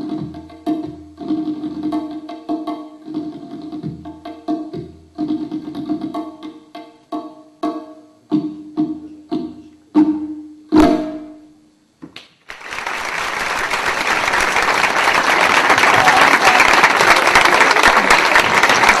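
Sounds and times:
audience applauding: 12.4 - 19.0.

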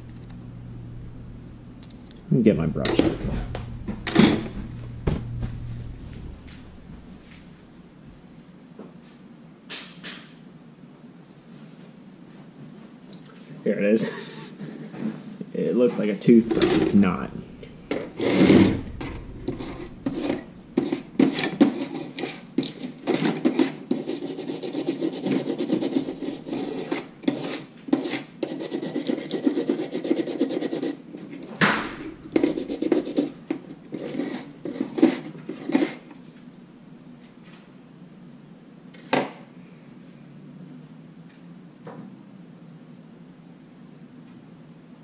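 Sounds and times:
brush scrubbing circuit board: 16.4 - 31.0, 31.9 - 36.0.

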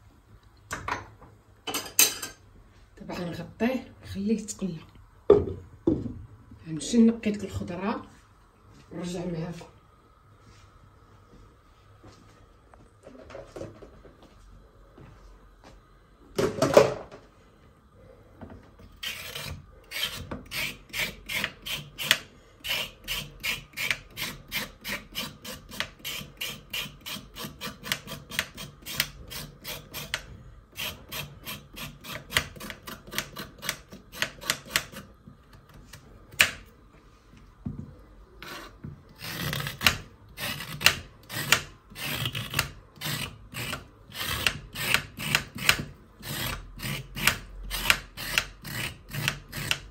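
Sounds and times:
knock on cutting board: 5.3 - 6.2
knife scraping carrot: 18.9 - 35.8, 38.4 - 49.9.

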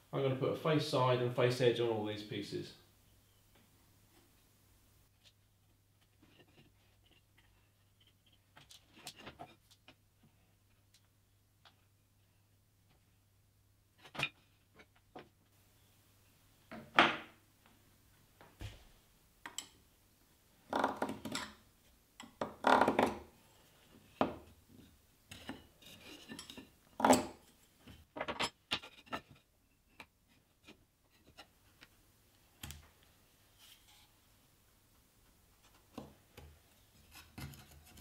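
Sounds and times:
wood and tools knocking on workbench: 16.7 - 17.3.

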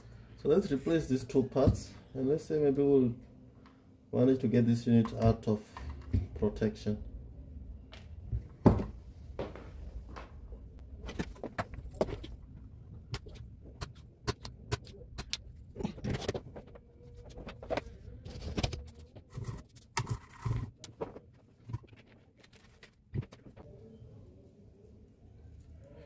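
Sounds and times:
circuit board handling clicks and knocks: 13.1 - 16.5.

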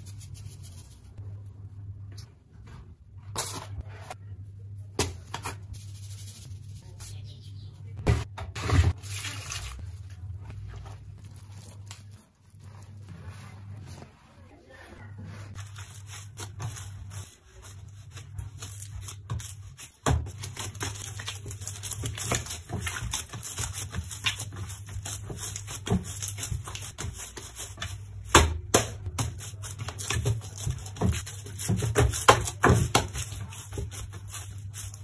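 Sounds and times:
low steady hum: 0.0 - 35.0
hands kneading dough in bowl: 8.8 - 35.0.

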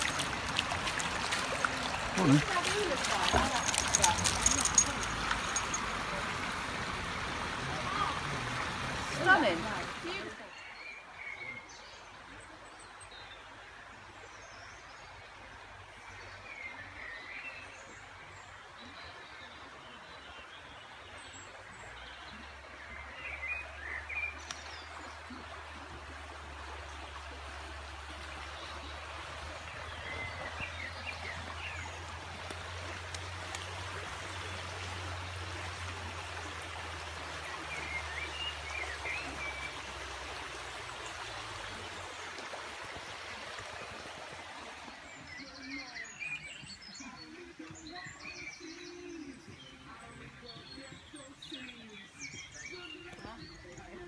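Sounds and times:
birds chirping: 0.0 - 6.1, 28.3 - 54.0
river running over stones: 0.0 - 54.0.

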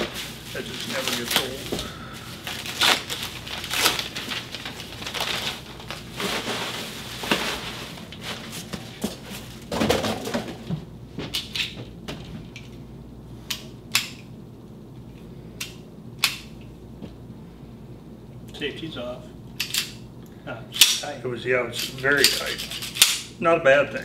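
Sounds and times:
paper crinkling and tearing: 0.0 - 9.7.

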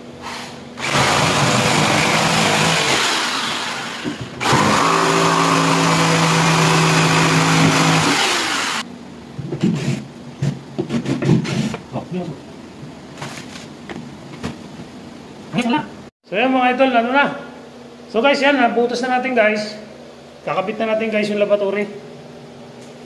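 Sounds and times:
jigsaw cutting plywood: 0.8 - 8.8.

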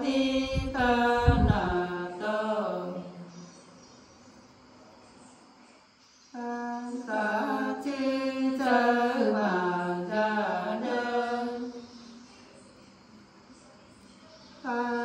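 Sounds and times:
women singing unaccompanied: 0.0 - 3.6, 6.3 - 12.4, 14.6 - 15.0.

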